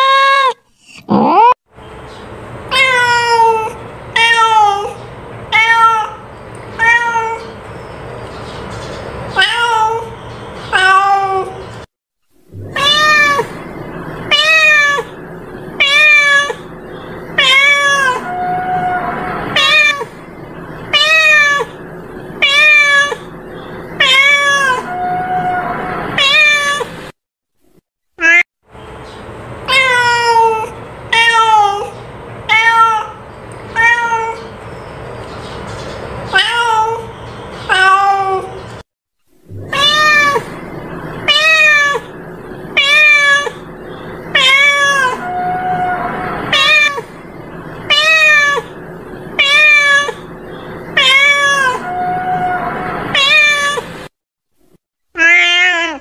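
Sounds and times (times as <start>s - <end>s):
cat meowing: 2.7s - 6.2s, 6.8s - 7.6s, 9.4s - 10.1s, 10.7s - 11.6s, 12.6s - 13.6s, 14.3s - 15.2s, 15.8s - 16.7s, 17.4s - 20.1s, 20.9s - 21.8s, 22.4s - 23.3s, 24.0s - 27.0s, 29.7s - 34.5s, 36.3s - 38.6s, 39.5s - 40.6s, 41.2s - 43.7s, 44.3s - 47.1s, 47.9s - 48.8s, 49.4s - 50.3s, 50.9s - 53.9s, 55.2s - 56.0s.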